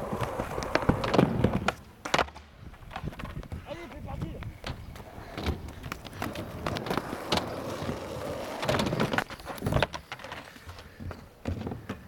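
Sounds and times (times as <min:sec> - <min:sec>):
skateboard clacking on ground: 0:00.0 - 0:12.0
skateboard wheels rolling on asphalt: 0:00.0 - 0:12.0.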